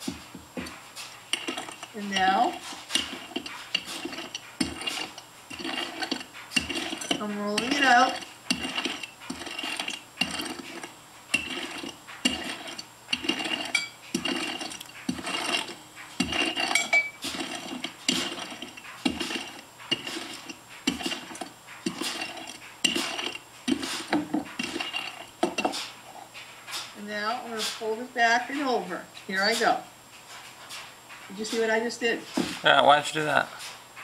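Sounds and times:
rolling pin rolling dough: 0.0s - 28.7s.

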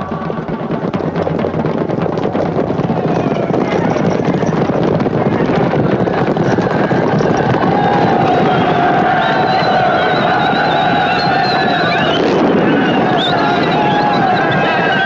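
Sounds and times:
horses galloping: 0.0s - 15.0s.

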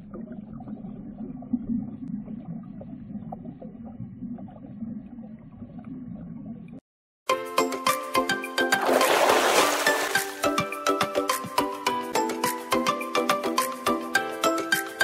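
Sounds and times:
muffled underwater rumble: 0.0s - 6.8s.

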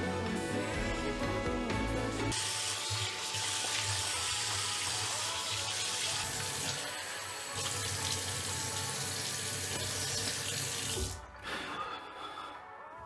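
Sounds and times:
tap water running into basin: 2.3s - 11.2s.

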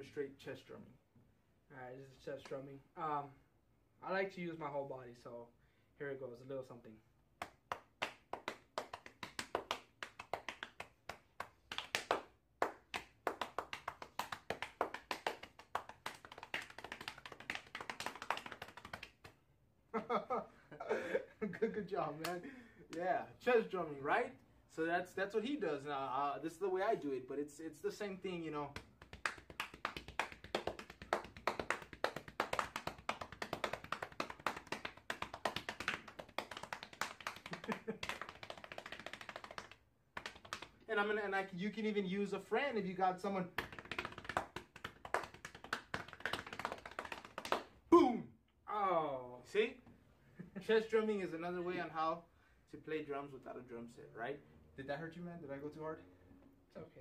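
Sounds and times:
hands slapping chest rhythmically: 2.3s - 2.7s, 7.3s - 20.4s, 22.0s - 23.2s, 28.0s - 41.4s, 43.0s - 48.1s
hand slaps on chest: 28.8s - 40.7s.

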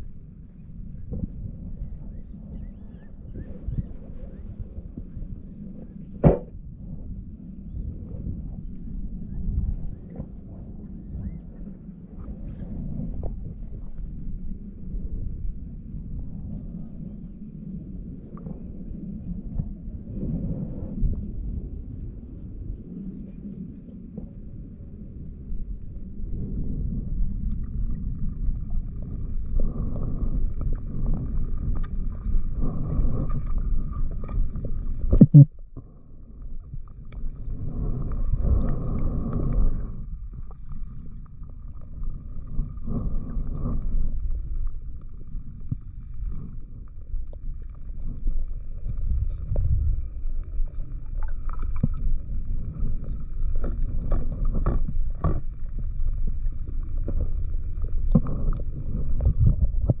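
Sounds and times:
underwater rumbling and gurgling: 0.0s - 60.0s
sharp knock: 6.2s - 6.5s.

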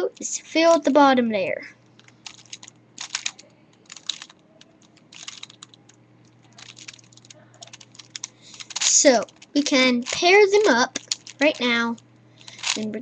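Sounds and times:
puzzle cube clicking: 2.0s - 5.9s, 6.6s - 12.9s.

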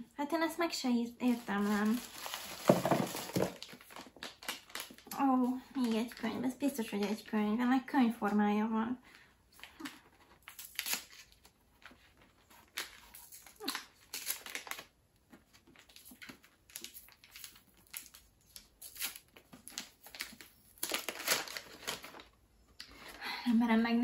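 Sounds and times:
paper wrapping crinkling: 1.2s - 6.3s, 9.6s - 22.4s.

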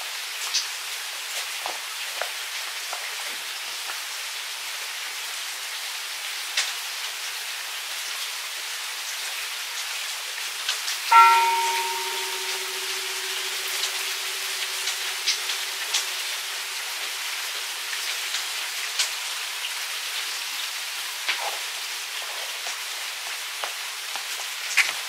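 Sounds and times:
steady rain: 0.0s - 25.0s
temple bell ringing: 11.1s - 17.4s
water drips: 11.1s - 19.8s.

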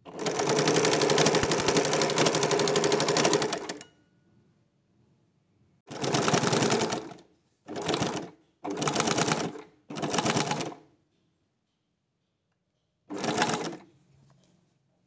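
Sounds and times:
sewing machine stitching: 0.1s - 3.8s, 5.9s - 10.8s, 13.1s - 13.9s.

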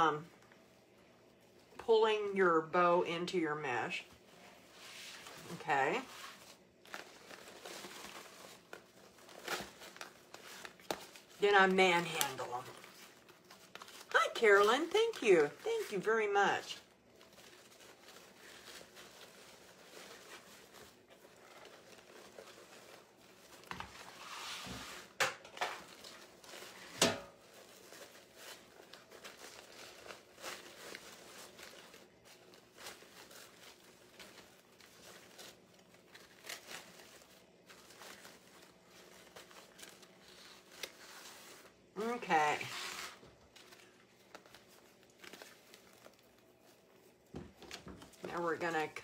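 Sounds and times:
ribbon and mesh rustling: 3.6s - 49.0s.

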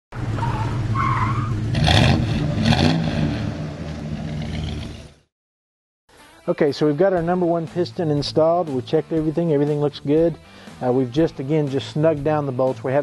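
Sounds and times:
car engine revving: 0.1s - 5.3s
tire squeal: 0.2s - 2.9s.

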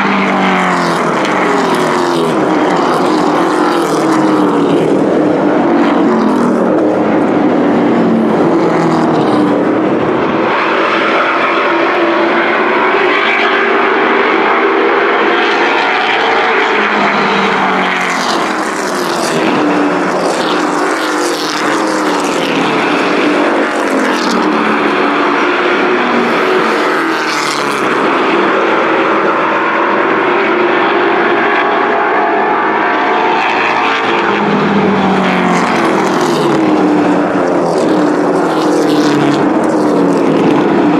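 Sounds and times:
race truck engines passing: 0.0s - 40.9s.

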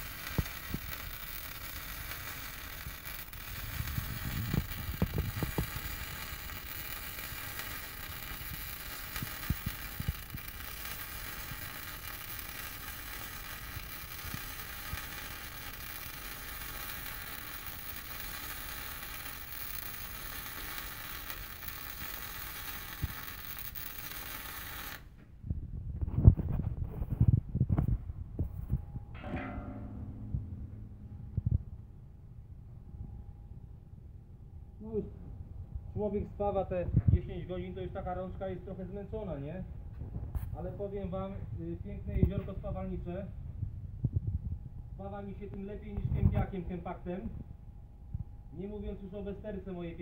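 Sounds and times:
welding arc hissing: 0.0s - 25.1s
low thumps: 25.4s - 33.7s.

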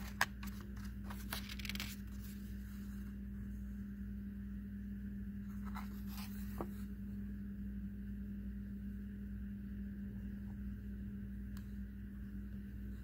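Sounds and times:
book pages turning: 0.0s - 3.0s, 5.5s - 6.9s
steady low hum: 0.0s - 13.0s.

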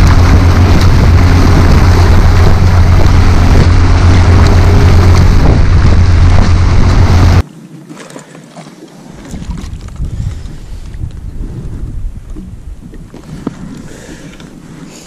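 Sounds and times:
boat motor hum: 0.0s - 7.4s
rush of wake water and wind: 0.0s - 15.0s.

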